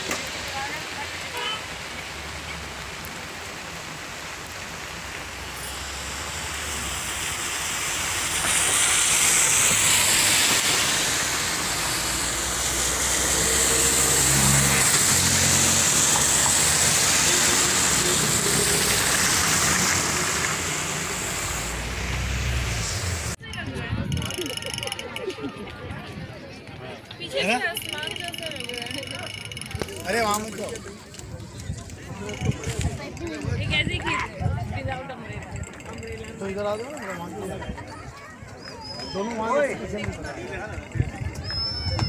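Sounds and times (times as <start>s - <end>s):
heavy rain on wet road: 0.0s - 23.4s.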